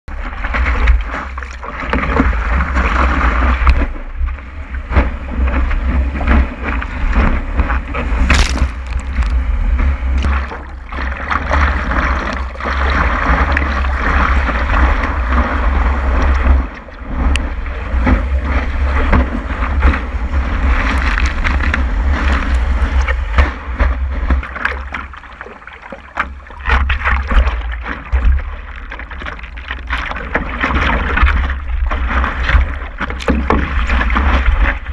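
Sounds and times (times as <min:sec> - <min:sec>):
low wind rumble on microphone: 0:00.1 - 0:34.9
water rushing and splashing: 0:00.1 - 0:34.9.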